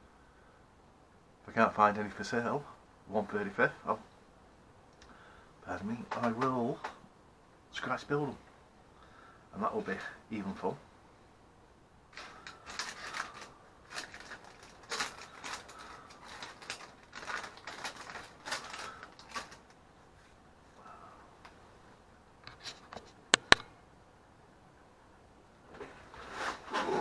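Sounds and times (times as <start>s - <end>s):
plastic bag crinkling: 12.1s - 19.8s
sharp clicks: 23.3s - 23.7s.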